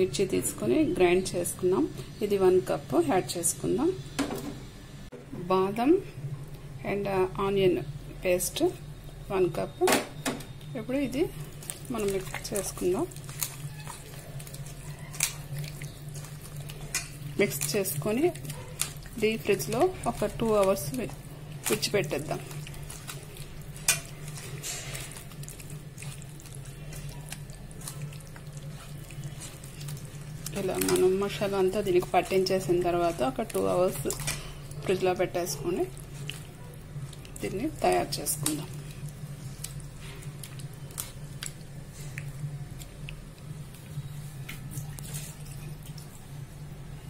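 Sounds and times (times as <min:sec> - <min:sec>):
steady low hum: 0:00.0 - 0:47.0
hand squishing wet marinade: 0:10.8 - 0:46.4.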